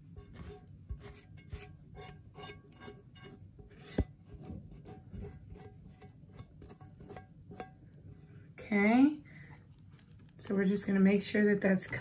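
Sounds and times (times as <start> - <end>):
spatula scraping a skillet: 0.0 - 8.3.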